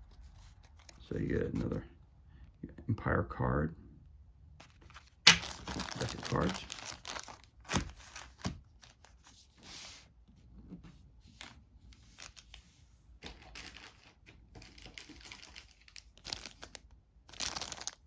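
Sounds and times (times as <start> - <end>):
plastic bag crinkling: 4.6 - 9.1, 13.2 - 18.0.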